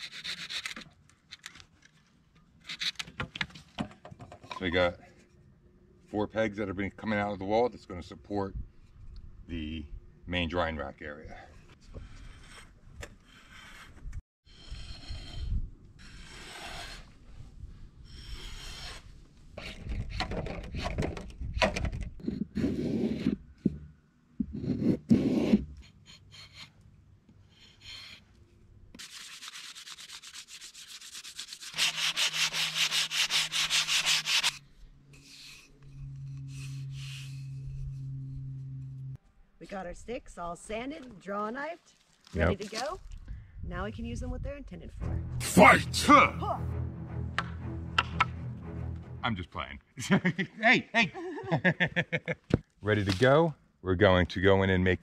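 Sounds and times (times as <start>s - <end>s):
drawknife scraping wood: 0.0s - 1.5s, 2.6s - 3.2s, 22.2s - 23.8s, 24.4s - 26.8s, 29.0s - 39.0s
sanding on wood: 29.0s - 34.6s.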